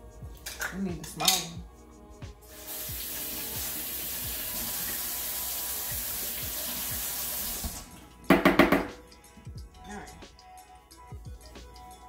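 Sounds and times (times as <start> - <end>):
faucet running into sink: 2.5 - 8.0.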